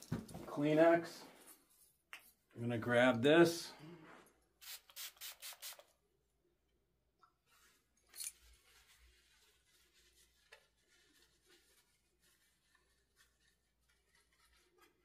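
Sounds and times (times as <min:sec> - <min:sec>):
pump spray bottle squirting: 0:04.6 - 0:05.9
tissue rustling: 0:07.5 - 0:15.0.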